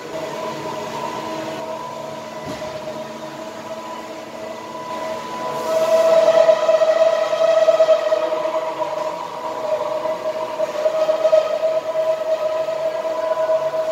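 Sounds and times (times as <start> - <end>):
machine hum with whining tones: 0.0 - 13.9
hiss: 5.4 - 13.9.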